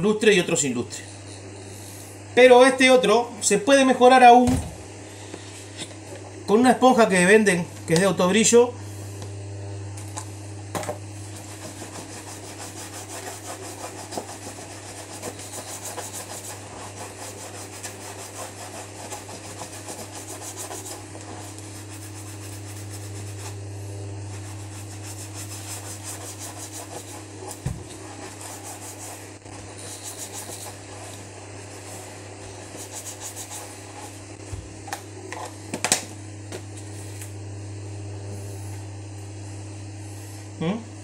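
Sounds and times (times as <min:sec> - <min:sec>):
sponge rubbing leather shoe: 0:11.2 - 0:23.6, 0:24.2 - 0:34.2
low hum: 0:20.5 - 0:41.0.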